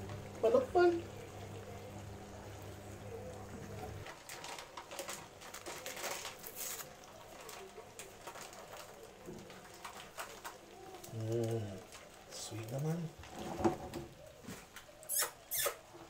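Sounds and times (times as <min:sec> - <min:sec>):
paper sachet crinkling and tearing: 0:04.0 - 0:12.0.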